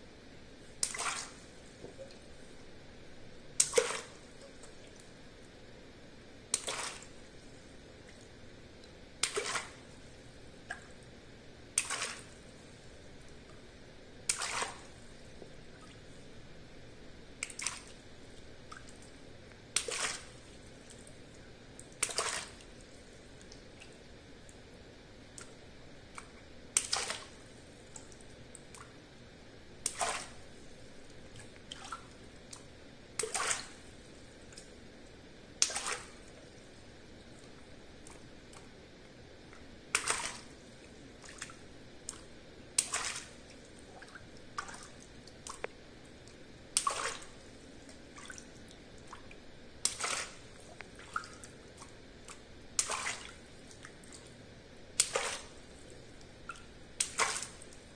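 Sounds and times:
water splashing: 0.8 - 2.2, 3.6 - 5.0, 6.6 - 7.2, 9.2 - 10.0, 11.8 - 12.4, 14.2 - 15.1, 17.4 - 18.0, 19.7 - 21.0, 21.9 - 22.9, 26.8 - 27.4, 29.8 - 30.5, 31.4 - 33.9, 35.6 - 36.4, 40.0 - 40.6, 41.2 - 45.6, 46.7 - 54.2, 55.0 - 55.7, 56.5 - 57.9.

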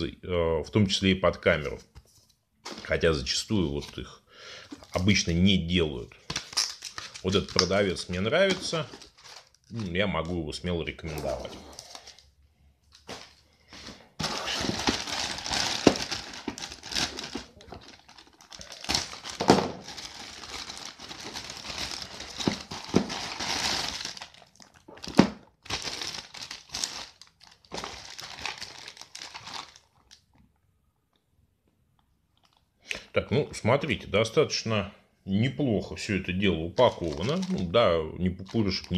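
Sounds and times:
plastic bag crinkling and rustling: 4.6 - 5.4, 6.2 - 30.4, 32.4 - 32.7, 36.8 - 38.9
plastic bag tearing: 14.2 - 30.2, 36.8 - 37.8, 38.4 - 38.9.

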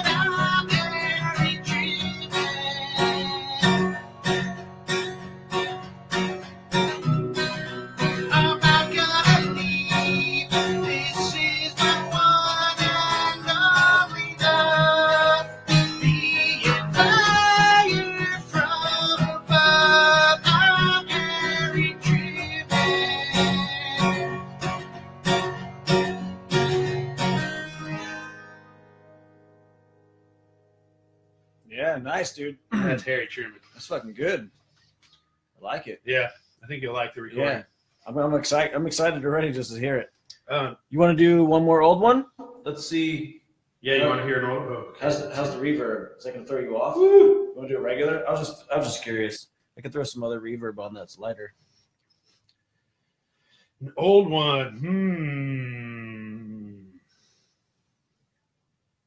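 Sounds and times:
acoustic guitar strumming: 0.0 - 30.8, 43.9 - 45.8.

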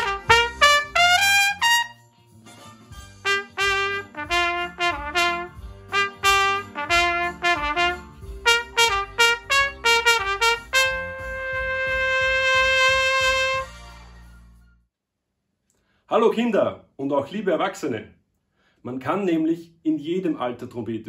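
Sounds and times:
trumpet playing a tune: 0.0 - 2.1, 3.1 - 13.9.

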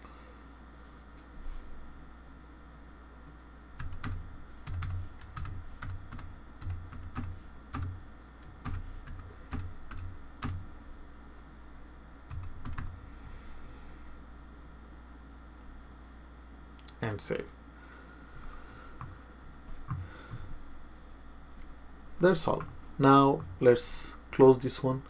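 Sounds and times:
typing on computer keyboard: 3.8 - 10.6, 12.3 - 12.9.

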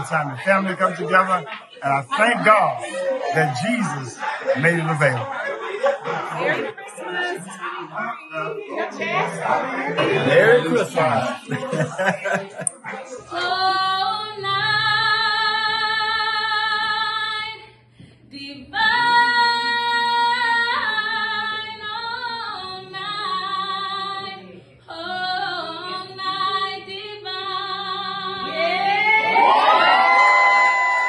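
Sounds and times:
woman singing a cappella: 10.8 - 29.5
listeners whooping and cheering: 28.8 - 31.0.

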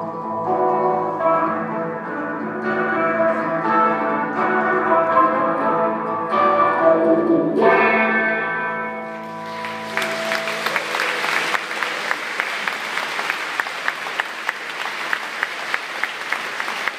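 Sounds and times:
guitar chord ringing: 0.0 - 11.7
audience applause: 9.2 - 16.9.

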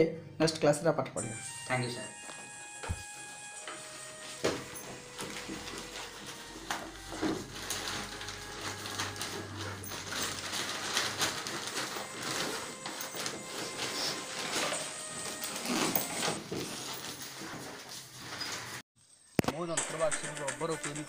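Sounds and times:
paper and plastic bag rustling: 2.4 - 18.8.

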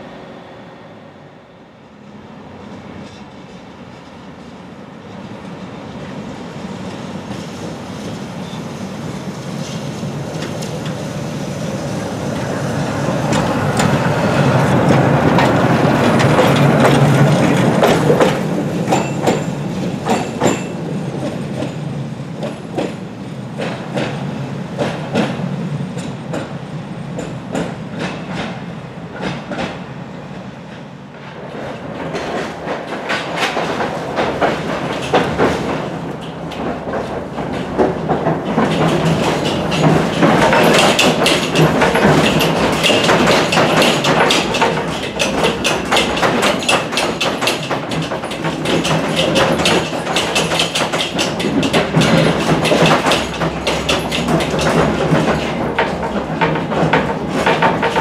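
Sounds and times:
tram wheels clattering on track: 2.5 - 58.0
harsh rattle inside tram car: 6.8 - 26.5, 31.2 - 58.0.

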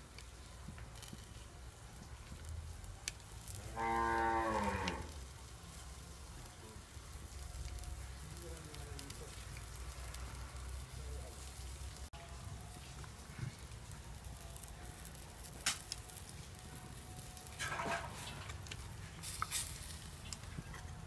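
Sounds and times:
wood fire crackling: 0.0 - 21.0
cow mooing: 3.7 - 5.1.

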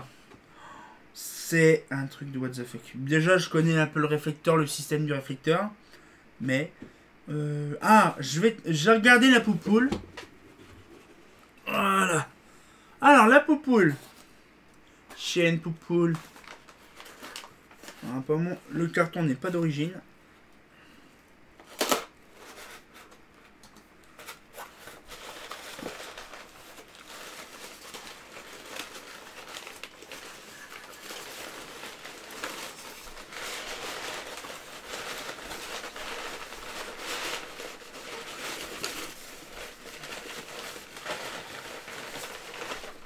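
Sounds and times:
wrapping rustling and crinkling: 8.0 - 11.5, 15.1 - 19.8, 21.6 - 43.0.

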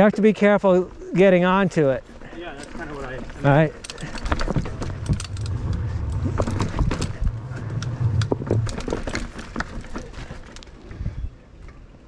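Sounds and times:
bike rumble on trail: 1.8 - 11.4
bike knocks and rattles: 2.5 - 10.8.

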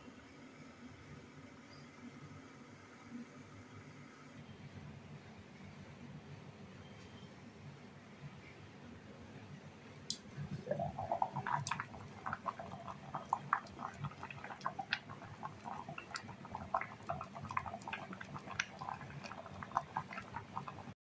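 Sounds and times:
water boiling in kettle: 10.1 - 21.0.

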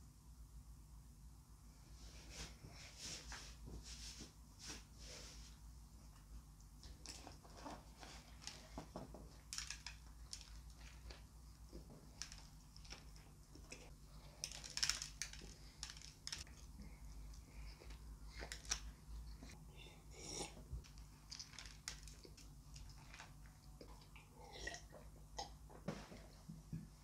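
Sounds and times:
paper wrapper crackling: 14.4 - 16.6, 20.9 - 23.4.

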